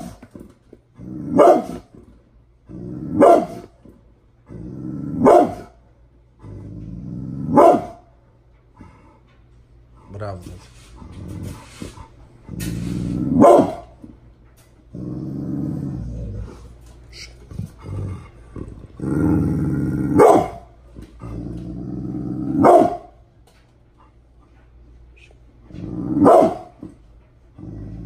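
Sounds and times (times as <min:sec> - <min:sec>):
dog growling: 0:00.9 - 0:03.7, 0:04.4 - 0:05.7, 0:06.3 - 0:07.8, 0:11.0 - 0:13.7, 0:14.9 - 0:23.0, 0:25.6 - 0:26.7, 0:27.5 - 0:28.0
dog barking sharply: 0:07.6 - 0:08.0, 0:13.4 - 0:13.8, 0:20.2 - 0:20.6, 0:22.6 - 0:23.1.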